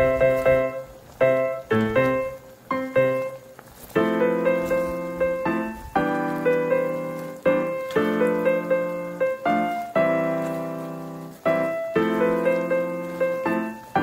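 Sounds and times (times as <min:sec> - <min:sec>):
piano chords: 0:00.0 - 0:14.0.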